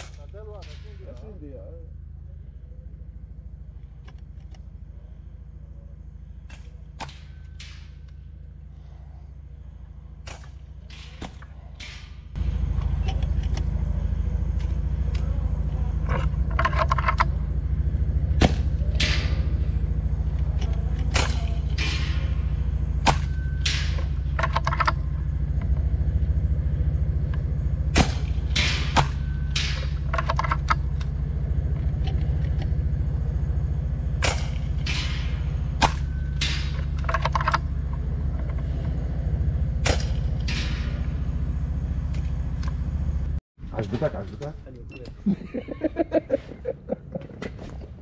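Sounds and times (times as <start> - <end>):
steady low rumble: 0.0 - 48.0
air rifle shots: 9.6 - 12.4, 18.3 - 25.4, 27.9 - 31.4, 34.2 - 37.1, 39.8 - 41.3.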